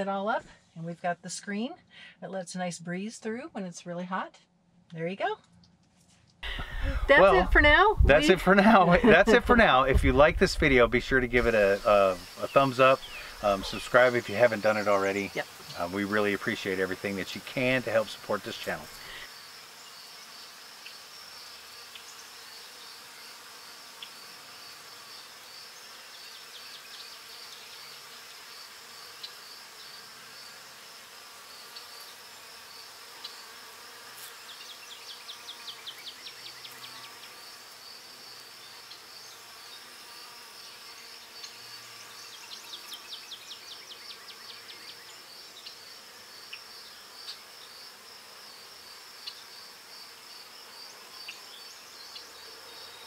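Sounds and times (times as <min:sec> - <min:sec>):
crickets chirping: 0:10.9 - 0:33.8, 0:34.5 - 0:53.0.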